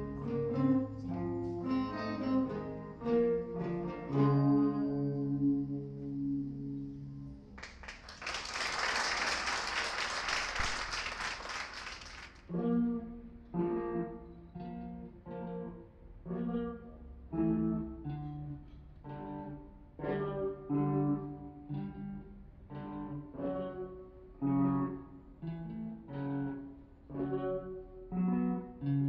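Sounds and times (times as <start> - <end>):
electric guitar chords: 0.0 - 7.6, 12.5 - 29.0
applause: 7.6 - 12.4.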